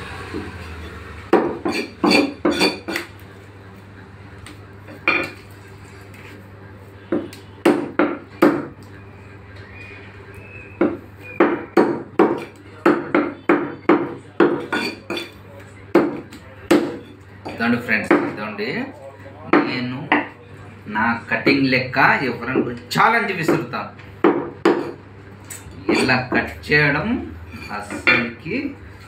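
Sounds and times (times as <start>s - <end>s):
cleaver chopping on wooden block: 7.1s - 8.7s, 10.8s - 14.7s.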